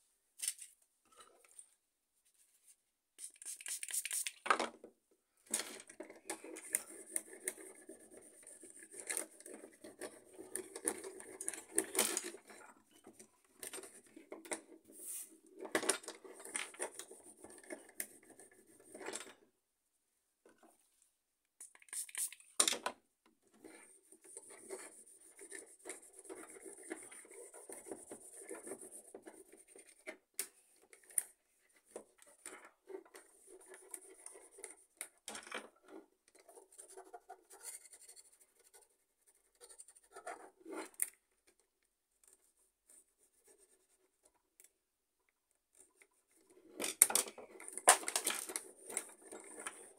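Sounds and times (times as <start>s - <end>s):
rubbing and scraping: 3.2s - 4.4s, 23.5s - 30.1s.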